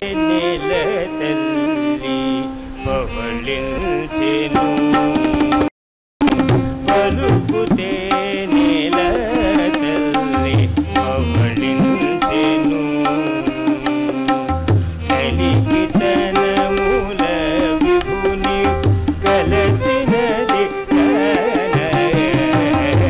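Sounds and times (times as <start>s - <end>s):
percussion strikes: 4.9s - 23.0s.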